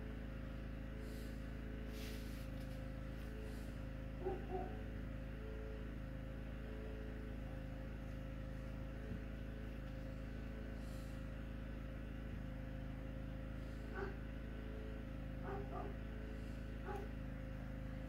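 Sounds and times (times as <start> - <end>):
background hum: 0.0 - 18.0
faint yip: 4.2 - 4.9, 15.4 - 16.0, 16.8 - 17.1.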